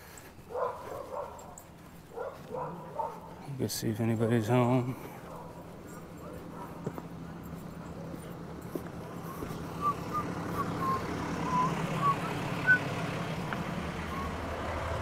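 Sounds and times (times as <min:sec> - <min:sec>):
truck engine idling: 0:04.3 - 0:15.0.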